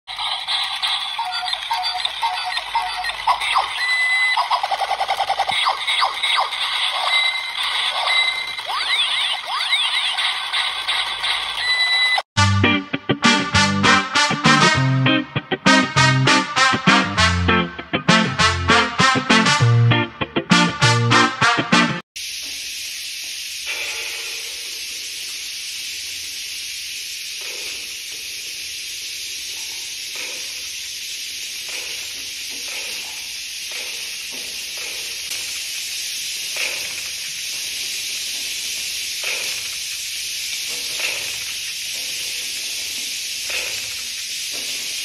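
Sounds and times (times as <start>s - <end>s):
toy spiders buzzing on tiles: 0.1s - 12.2s, 22.3s - 45.0s.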